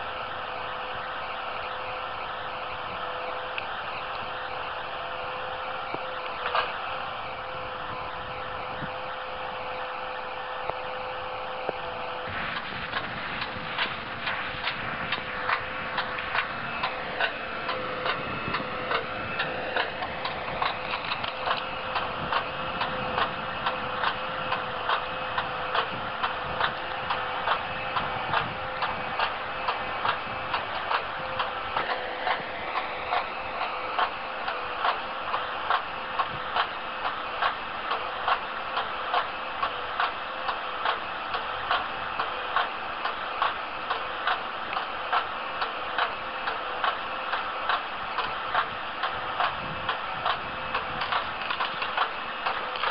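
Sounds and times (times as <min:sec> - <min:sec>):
steady machine hum: 0:00.0 - 0:52.9
mechanical ticking: 0:11.6 - 0:52.9.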